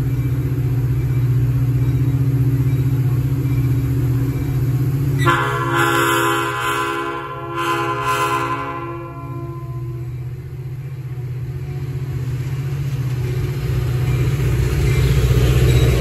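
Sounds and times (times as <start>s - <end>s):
locomotive engine rumble: 0.0s - 16.0s
train rail noise: 0.0s - 16.0s
locomotive horn chord: 5.2s - 10.3s.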